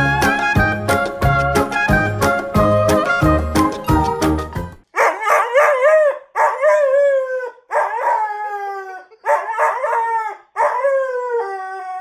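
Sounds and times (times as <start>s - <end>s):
dog howling: 5.0s - 12.0s.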